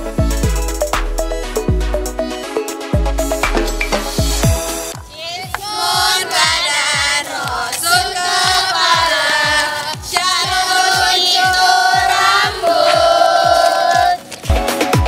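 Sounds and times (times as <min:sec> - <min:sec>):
kick drum beat: 0:03.0 - 0:15.0
women singing together: 0:05.1 - 0:14.3.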